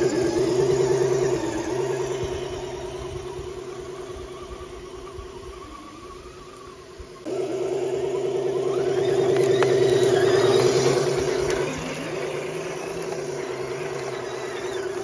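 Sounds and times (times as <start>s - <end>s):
rc truck motor whining: 0.0s - 15.0s.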